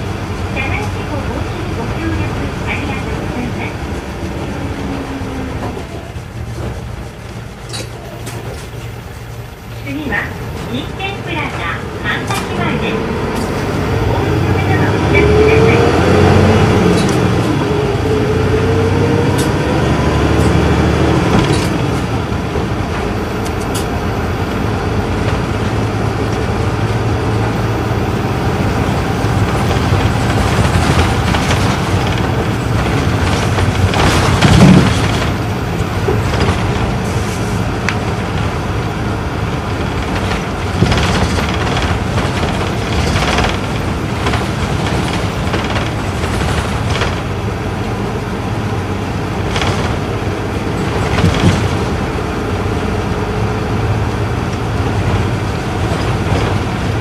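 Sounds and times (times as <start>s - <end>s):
bus diesel engine cruising: 0.0s - 57.0s.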